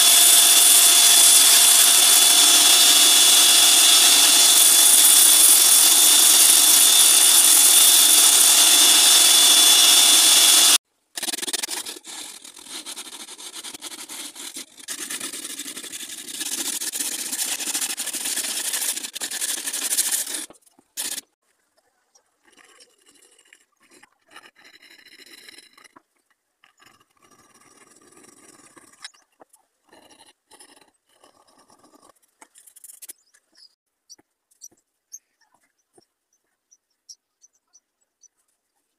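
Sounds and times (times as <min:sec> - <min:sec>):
belt grinder running: 0:00.0 - 0:10.8, 0:14.4 - 0:21.3
hand sanding wooden handle: 0:00.0 - 0:21.4.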